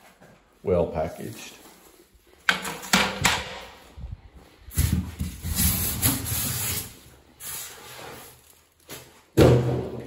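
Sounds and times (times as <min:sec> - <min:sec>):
plastic packaging rustling: 0:04.7 - 0:09.4.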